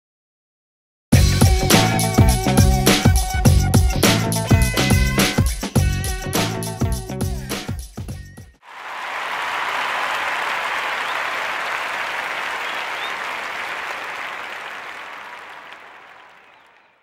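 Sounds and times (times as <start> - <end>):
crowd applause: 8.6 - 17.0.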